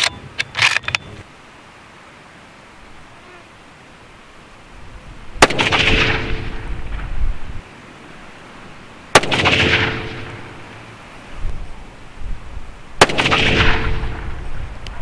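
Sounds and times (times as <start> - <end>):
rifle shots with rolling echo: 5.4 - 7.1, 9.1 - 10.8, 13.0 - 14.6.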